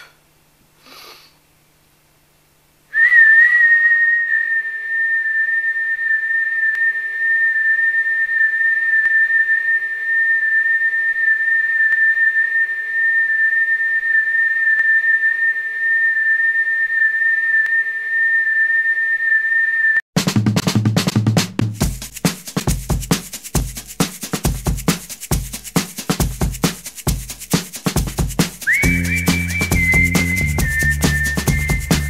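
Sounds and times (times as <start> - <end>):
high-pitched whistling tone: 2.9 - 20.0, 28.6 - 32.0.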